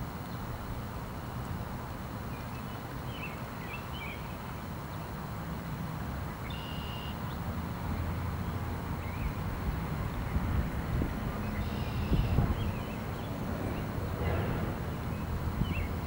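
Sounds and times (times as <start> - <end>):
low outdoor rumble: 7.3 - 16.0.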